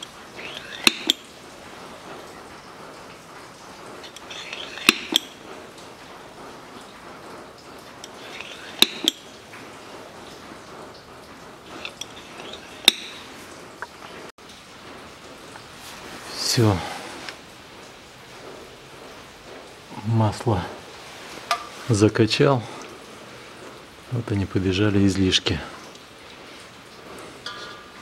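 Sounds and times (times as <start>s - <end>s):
hand oil pump squeaking strokes: 0.0s - 1.3s, 4.0s - 5.4s, 8.0s - 9.4s, 11.6s - 13.3s.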